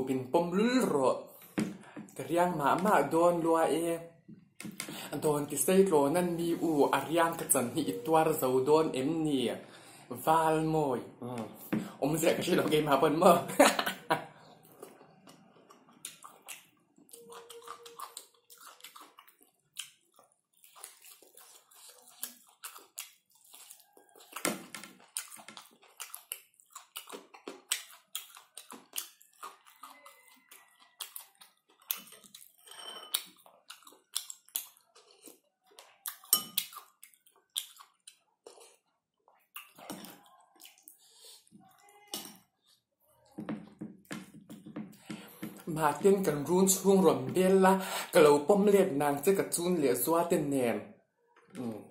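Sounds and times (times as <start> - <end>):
person chewing wetly: 14.4 - 46.3.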